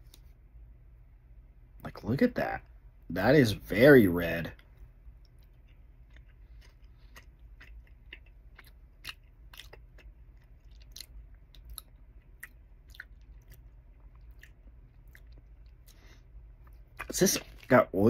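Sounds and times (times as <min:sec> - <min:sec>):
person chewing wetly: 0:05.2 - 0:17.7.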